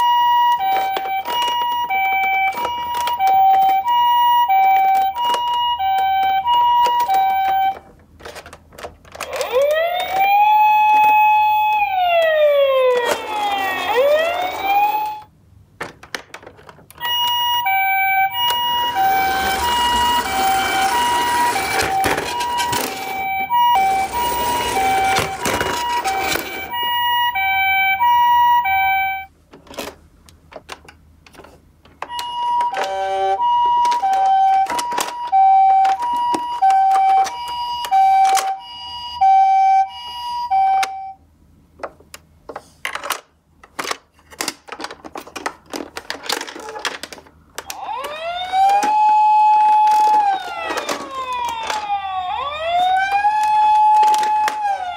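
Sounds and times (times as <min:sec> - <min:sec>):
siren wail: 0:00.0 - 0:07.8, 0:09.2 - 0:15.3, 0:17.0 - 0:29.3, 0:32.1 - 0:41.1, 0:47.6 - 0:54.9
toy ambulance two-tone siren: 0:00.0 - 0:07.9, 0:09.2 - 0:15.3, 0:17.0 - 0:29.3, 0:32.1 - 0:41.2, 0:47.6 - 0:54.9
plastic clicks and knocks: 0:15.8 - 0:17.0, 0:33.6 - 0:38.6, 0:41.8 - 0:49.0, 0:49.6 - 0:51.9, 0:52.9 - 0:54.8
rushing rolling noise: 0:18.0 - 0:26.8.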